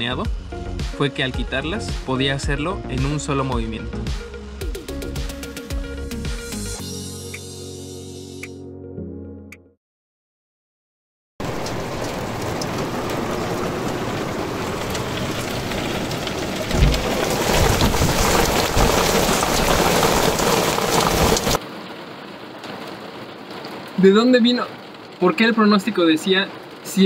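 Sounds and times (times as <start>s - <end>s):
low thunder rumble: 11.4s - 21.6s
heavy rain pouring: 11.4s - 27.0s.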